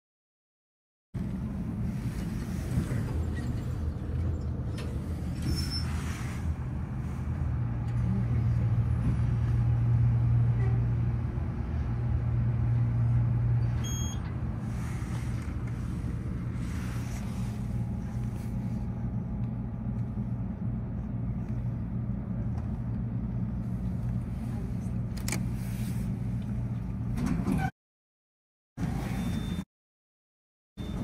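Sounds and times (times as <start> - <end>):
elevator low hum: 1.2 - 27.7
short electronic beep: 13.8 - 14.3, 29.1 - 29.7, 30.8 - 31.0.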